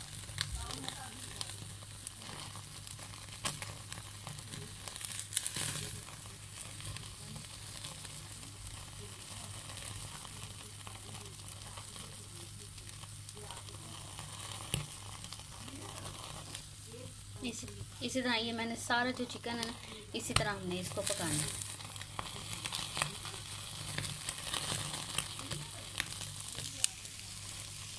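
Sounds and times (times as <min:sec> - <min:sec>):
chicken sizzling over flame: 0:00.0 - 0:27.9
crackling pops: 0:00.0 - 0:27.9.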